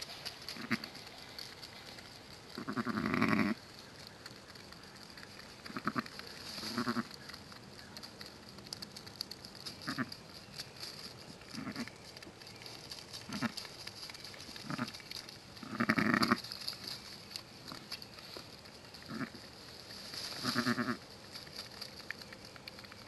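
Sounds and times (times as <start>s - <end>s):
ewe bleating softly: 2.6s - 3.6s, 5.7s - 7.2s, 15.6s - 16.4s, 19.1s - 19.4s, 20.4s - 21.0s.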